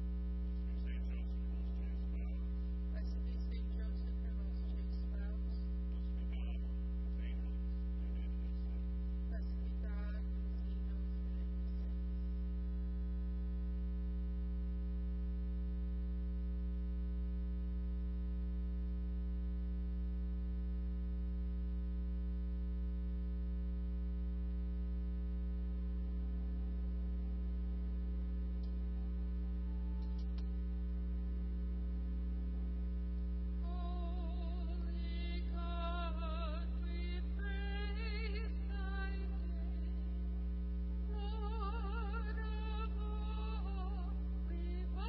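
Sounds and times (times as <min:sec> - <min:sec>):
electrical mains hum: 0:00.0 - 0:45.0
faint music: 0:00.4 - 0:12.5, 0:26.3 - 0:30.9.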